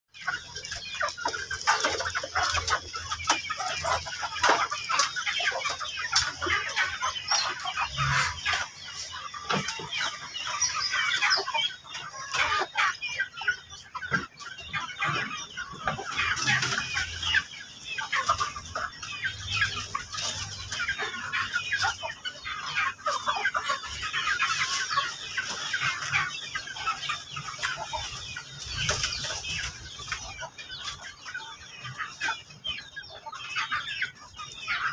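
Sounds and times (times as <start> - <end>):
chickens clucking: 0.1 - 34.9.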